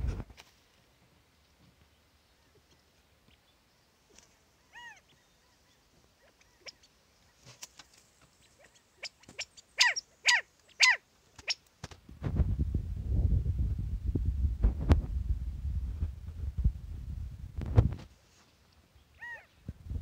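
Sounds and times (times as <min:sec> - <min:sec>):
quail calling: 0:04.6 - 0:07.6, 0:08.4 - 0:11.7, 0:19.1 - 0:19.6.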